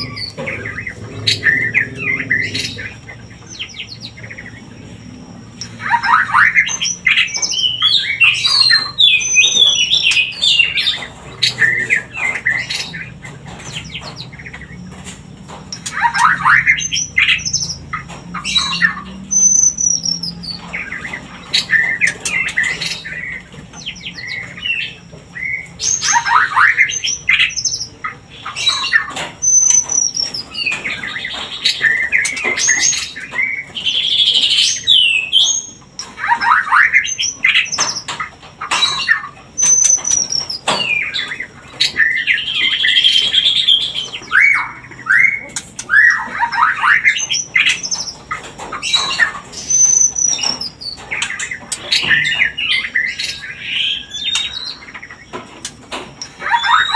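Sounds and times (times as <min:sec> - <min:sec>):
songbird whistling and chattering: 0:00.0 - 0:14.8, 0:15.7 - 0:55.4, 0:56.2 - 0:56.9.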